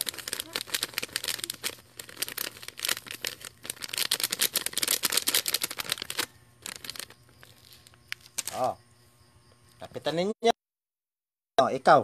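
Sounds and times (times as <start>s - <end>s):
plastic packet crinkling: 0.0s - 8.7s.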